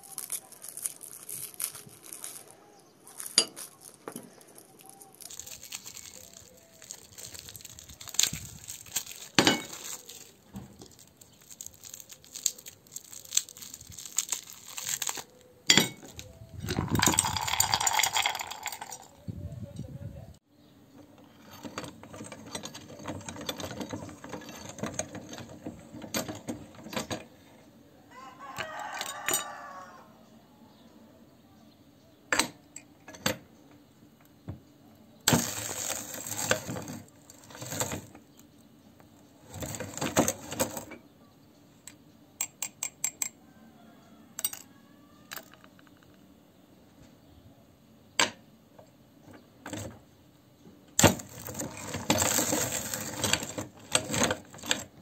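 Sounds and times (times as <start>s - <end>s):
meat grinder crunching hard candy: 0.0s - 15.4s, 16.8s - 19.0s, 35.3s - 38.1s, 51.2s - 54.6s
sharp cracks and clicks: 4.6s - 15.4s.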